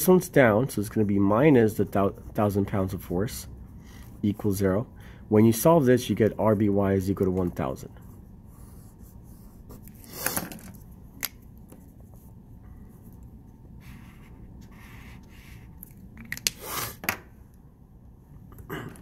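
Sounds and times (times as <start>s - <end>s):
pen rubbing on paper: 13.8s - 15.7s.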